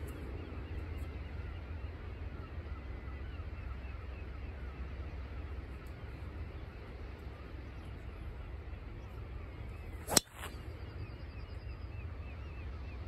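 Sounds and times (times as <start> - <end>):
golf club striking ball: 10.1 - 10.5.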